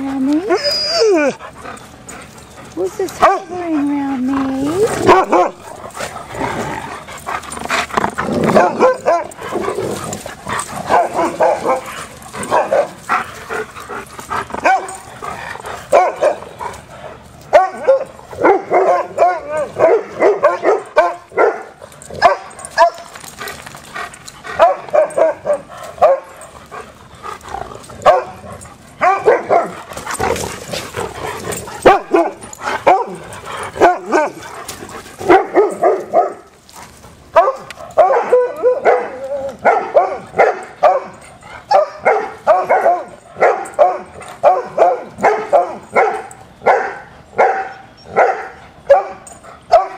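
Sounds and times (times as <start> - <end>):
dogs barking and yipping: 0.0 - 49.9.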